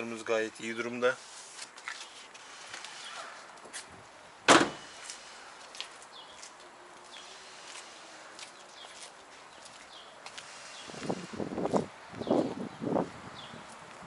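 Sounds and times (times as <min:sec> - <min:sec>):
van door slamming: 0:04.5 - 0:04.9
footsteps on paving: 0:05.0 - 0:12.6.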